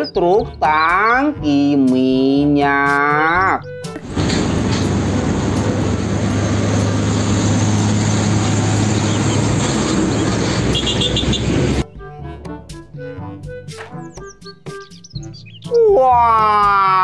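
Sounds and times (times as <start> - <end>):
tyre and road noise: 3.9 - 11.8
truck engine drone: 4.0 - 11.8.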